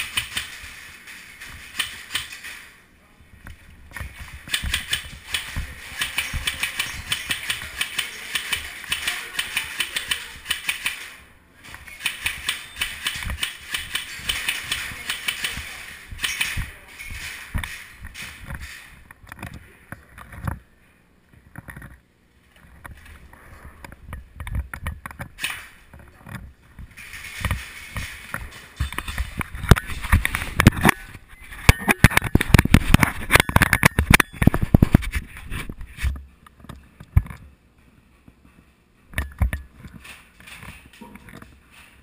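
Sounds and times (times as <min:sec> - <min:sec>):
airsoft guns clicking: 0:04.5 - 0:11.2, 0:12.0 - 0:16.6.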